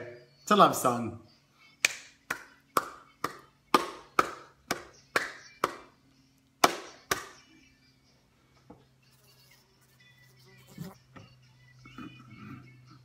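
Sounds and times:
hand claps: 1.8 - 5.9, 6.6 - 7.4.

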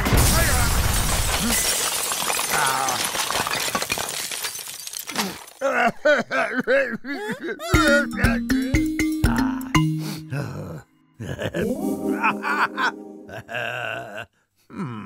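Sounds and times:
cartoon crash of debris: 0.0 - 5.6
cartoon character sobbing: 5.6 - 15.0.

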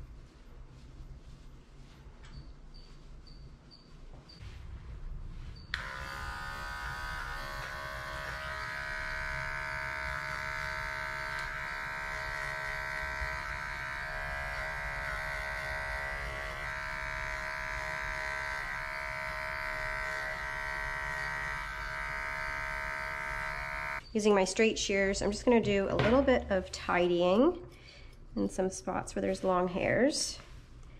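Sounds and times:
electric pet clipper buzzing: 5.7 - 24.0.

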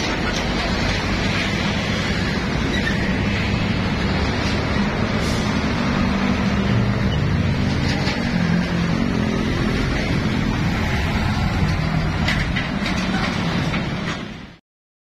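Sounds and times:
diesel trucks passing: 0.0 - 14.6
tyre and road noise: 0.0 - 14.6.

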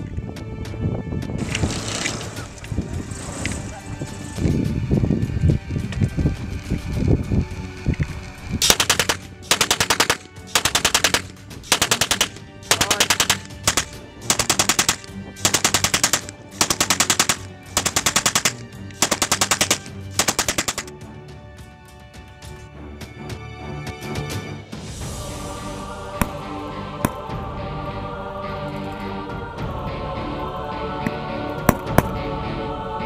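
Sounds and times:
prop machine gun bursts: 8.6 - 20.9.

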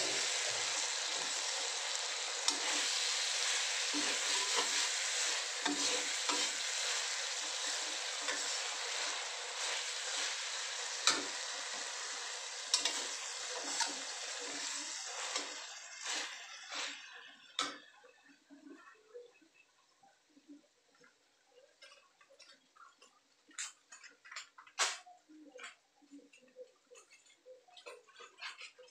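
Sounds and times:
metal spatula scraping a wok: 0.0 - 17.3
chilies and garlic sizzling in a wok: 0.0 - 18.2.

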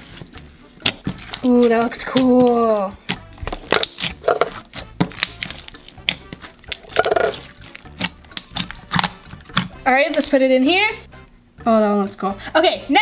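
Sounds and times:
slime squished by hand crackling: 0.1 - 9.7.

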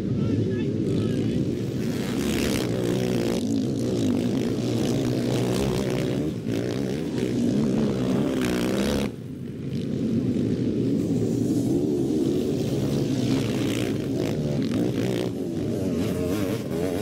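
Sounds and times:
motocross engines revving: 0.0 - 17.0.

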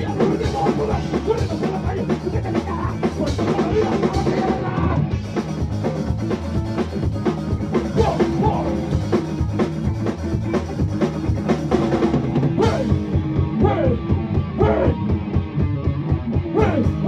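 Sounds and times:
electric guitars: 0.0 - 17.0
fast drum beat: 0.0 - 17.0
live band playing loud: 0.0 - 17.0.

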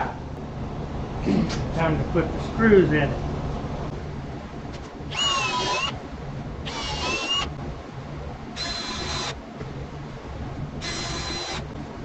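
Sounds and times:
cordless drill whine: 5.1 - 6.0, 6.7 - 7.5, 8.6 - 9.4, 10.8 - 11.7.

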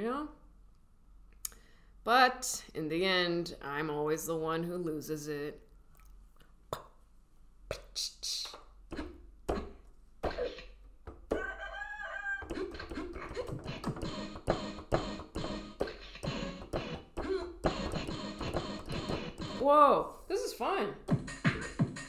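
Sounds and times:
beatboxed mouth pops and clicks: 6.7 - 7.0, 7.7 - 10.7, 12.4 - 15.1
wavering crow-like sound: 11.3 - 12.7
electronic keyboard over beat: 12.5 - 19.6, 21.1 - 22.0.

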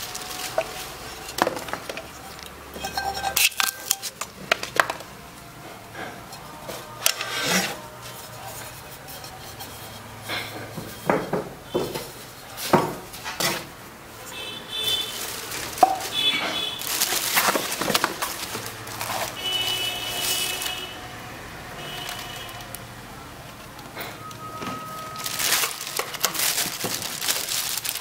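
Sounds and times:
packaging rustling: 0.0 - 5.2, 14.3 - 28.0
metal pans knocking together: 0.5 - 5.1
high ringing tones: 24.2 - 25.3.

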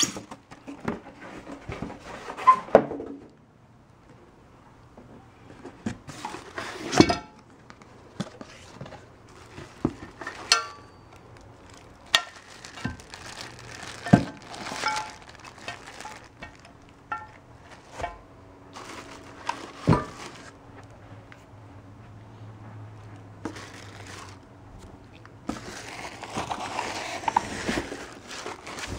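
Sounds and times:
plastic wrapping crinkling: 7.6 - 17.9, 18.7 - 20.6, 23.4 - 24.5, 25.4 - 28.9
cardboard rustling: 7.8 - 10.5, 11.2 - 16.8, 18.7 - 20.6, 23.5 - 24.4, 25.5 - 28.9.

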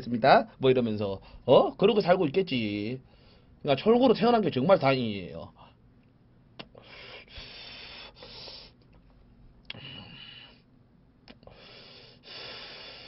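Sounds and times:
lip clicks: 6.0 - 6.8, 11.2 - 11.5.

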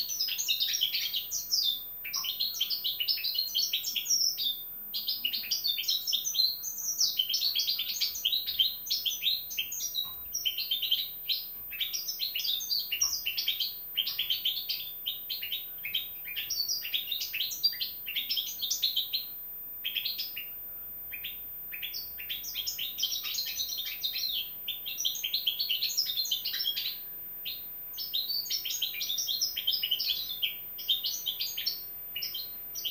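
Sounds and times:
finch twittering song: 0.0 - 32.9.

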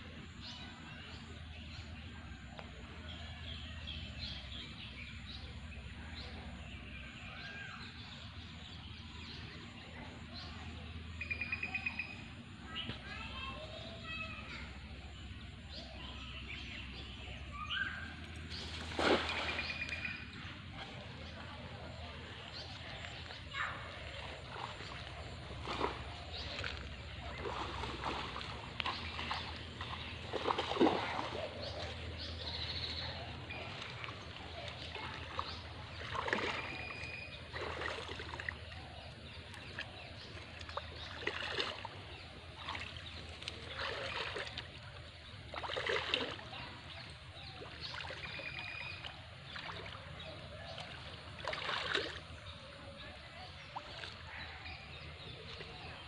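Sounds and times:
shallow water splashing: 12.7 - 56.0.

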